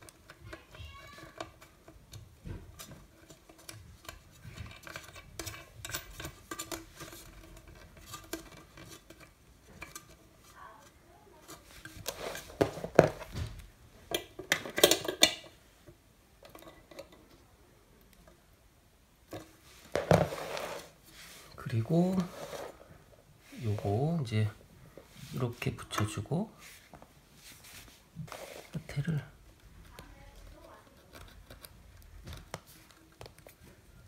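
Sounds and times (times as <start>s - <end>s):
small clicks taps and scrapes: 0.0s - 13.3s, 28.3s - 33.8s.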